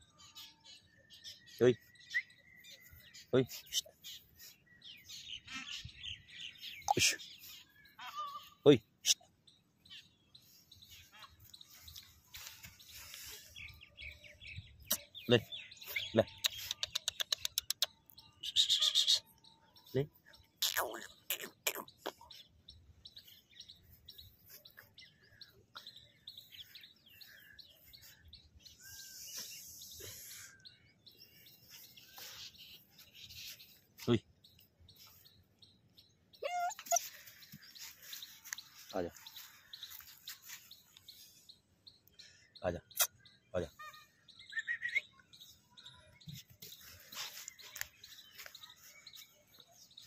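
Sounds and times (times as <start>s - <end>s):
small birds chirping: 0.0s - 50.0s
puppy whimpering: 36.4s - 37.1s.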